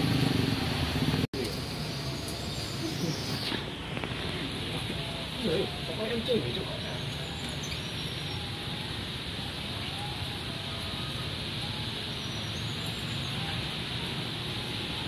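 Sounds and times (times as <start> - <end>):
heavy rain hissing: 0.0 - 15.0.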